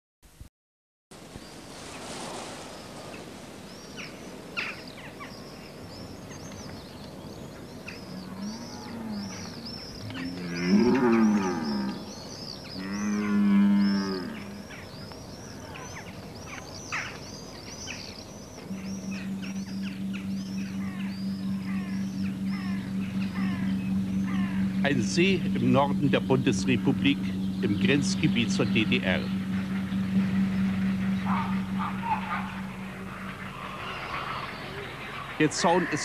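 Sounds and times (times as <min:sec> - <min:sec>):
small birds chirping: 0:01.2 - 0:36.0
deer stags roaring: 0:08.1 - 0:12.1, 0:12.8 - 0:14.7, 0:18.7 - 0:35.2.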